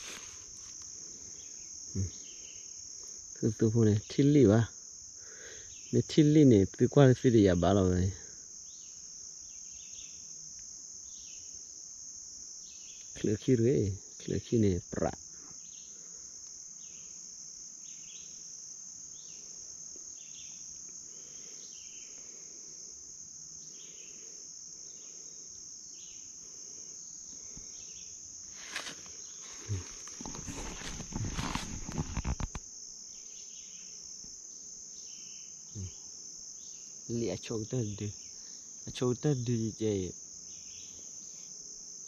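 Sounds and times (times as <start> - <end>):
close rustling and knocks: 0.0 - 0.9, 28.5 - 32.6
insects droning: 0.0 - 42.0.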